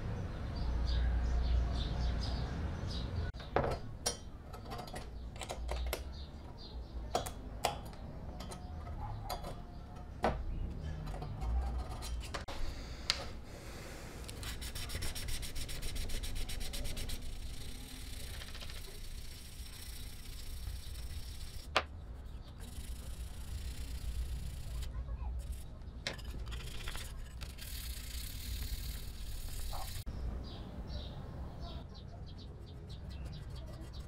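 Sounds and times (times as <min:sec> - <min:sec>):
file scraping metal: 0:08.3 - 0:12.5, 0:14.3 - 0:17.9, 0:32.6 - 0:34.0
sanding block rubbing metal: 0:14.4 - 0:24.8, 0:32.6 - 0:34.0.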